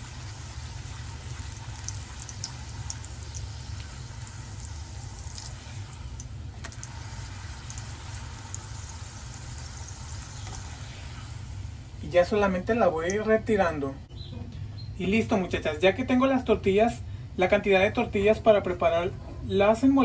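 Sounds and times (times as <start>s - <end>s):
tortilla sizzling in oil: 0.0s - 12.0s
constant low hum: 0.0s - 20.0s.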